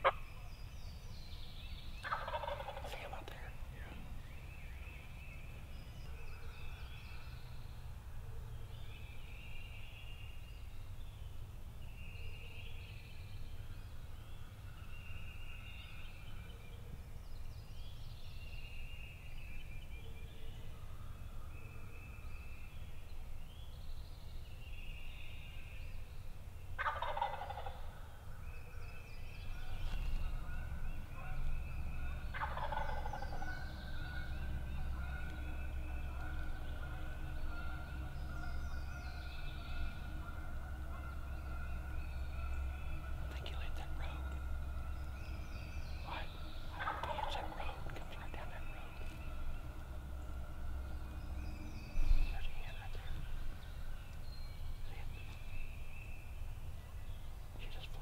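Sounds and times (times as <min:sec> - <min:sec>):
turkeys gobbling: 0:00.0 - 0:00.2, 0:02.0 - 0:03.2, 0:26.8 - 0:27.8, 0:32.3 - 0:38.5, 0:39.6 - 0:42.8, 0:46.7 - 0:48.0.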